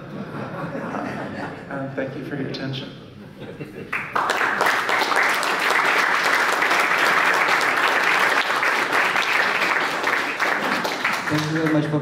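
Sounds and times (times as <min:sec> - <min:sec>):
audience applauding: 0:03.9 - 0:12.0.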